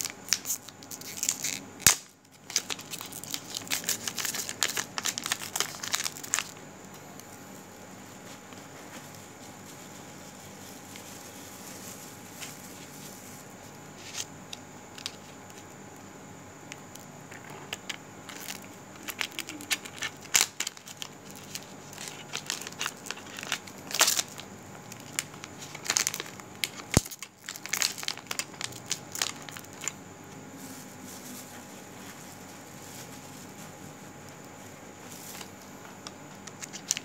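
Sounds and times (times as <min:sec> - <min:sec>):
crackling and rustling: 0:00.0 - 0:16.1, 0:16.7 - 0:37.0
faint steady hum: 0:00.0 - 0:37.0.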